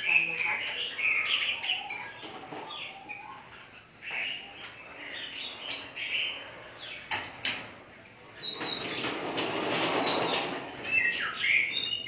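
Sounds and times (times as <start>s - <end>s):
songbirds chirping: 0.0s - 12.0s.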